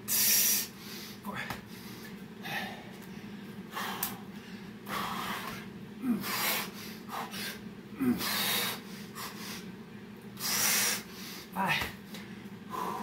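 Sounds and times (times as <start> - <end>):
steady low hum: 0.0 - 13.0
man breathing hard: 0.1 - 9.8, 10.4 - 13.0.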